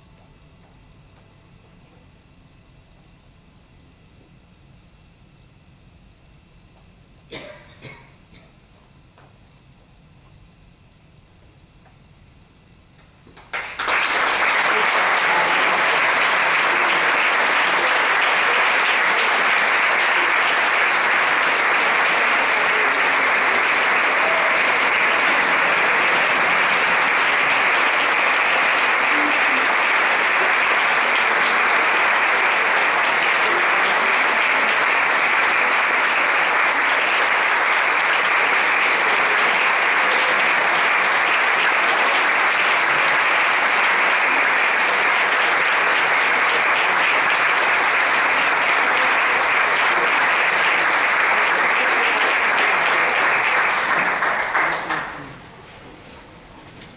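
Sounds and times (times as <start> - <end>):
audience applauding: 13.3 - 55.6.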